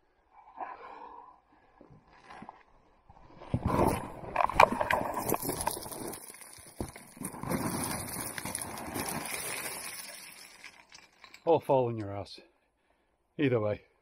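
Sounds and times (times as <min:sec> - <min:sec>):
scraping over stones: 0:03.5 - 0:11.5
stones clattering: 0:03.7 - 0:11.5.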